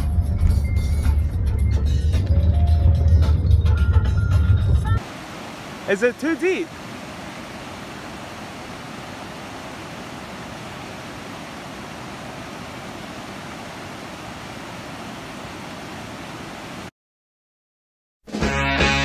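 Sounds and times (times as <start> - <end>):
river water rushing over rocks: 5.0 - 16.9.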